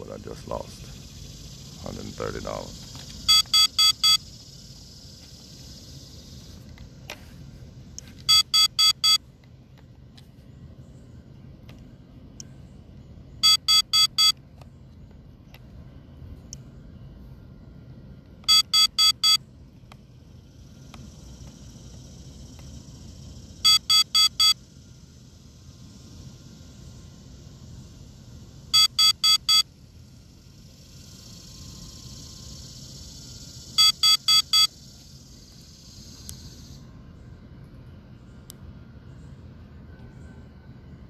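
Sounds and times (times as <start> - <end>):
quick electronic beeps: 3.3 - 4.3, 8.3 - 9.2, 13.4 - 14.4, 18.5 - 19.4, 23.6 - 24.6, 28.8 - 29.7, 33.8 - 34.7.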